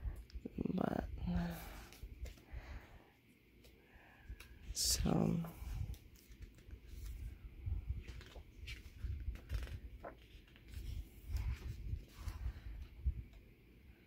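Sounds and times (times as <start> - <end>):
paper pages rustling: 5.8 - 7.4, 8.0 - 12.8.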